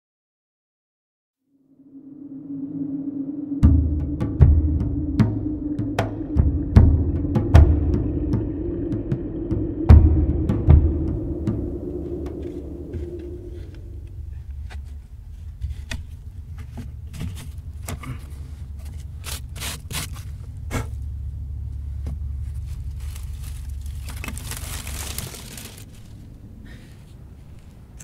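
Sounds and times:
low steady rumble: 1.7 - 28.0
rustling: 21.7 - 27.8.

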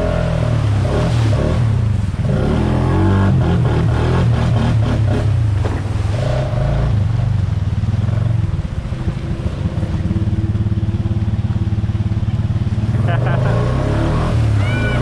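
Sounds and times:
atv engine idling: 6.6 - 13.4.

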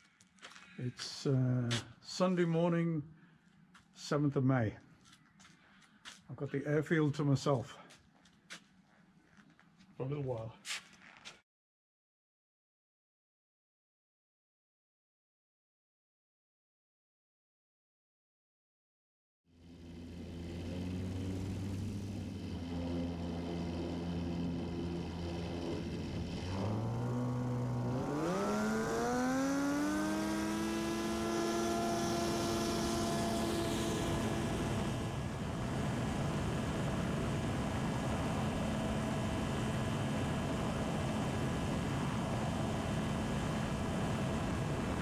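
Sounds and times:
light aircraft engine and propeller: 19.5 - 45.0.

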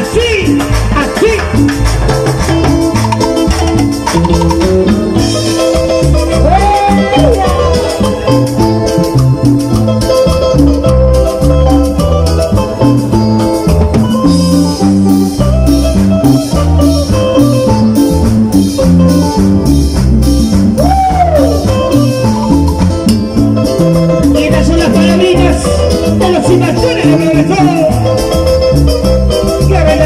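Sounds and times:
electric guitar melody: 0.0 - 30.0
live band playing cumbia: 0.0 - 30.0.

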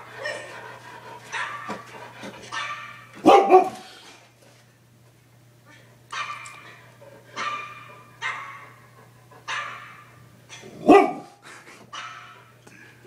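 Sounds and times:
dogs barking: 1.2 - 3.9, 6.1 - 12.6.

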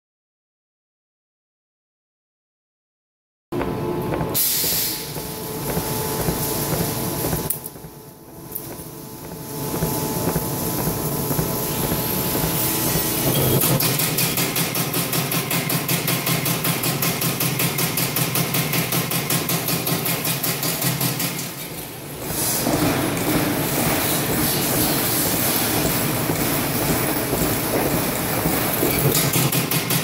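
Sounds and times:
machine running: 3.6 - 14.9, 22.4 - 30.0.

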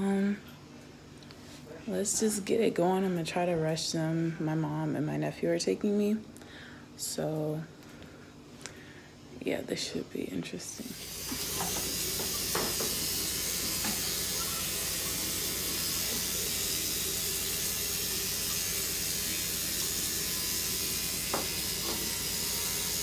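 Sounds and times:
tap running into sink: 11.0 - 14.7, 21.2 - 22.3.

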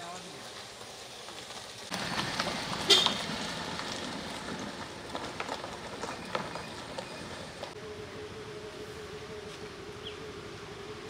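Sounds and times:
tyres crunching on gravel: 0.0 - 7.8.

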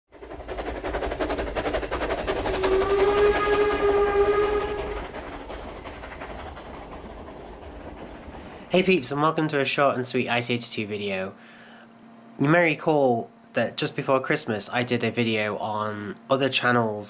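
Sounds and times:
steam locomotive chuffing: 0.1 - 11.8
steam whistle blowing: 2.5 - 5.1.

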